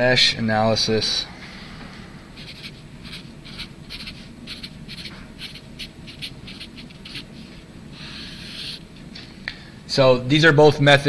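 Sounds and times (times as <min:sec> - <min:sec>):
marker writing on paper: 0:02.4 - 0:08.8.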